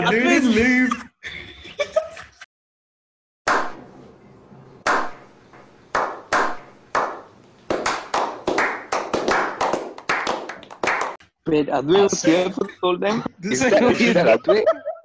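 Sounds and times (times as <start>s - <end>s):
hand claps with echo: 3.5s - 3.8s, 4.9s - 5.2s, 5.9s - 11.2s.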